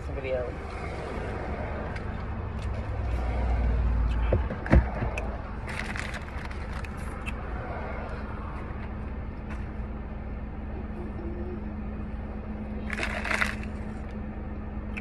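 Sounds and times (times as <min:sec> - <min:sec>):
car engine idling: 0:01.4 - 0:15.0
crinkling: 0:05.6 - 0:07.1.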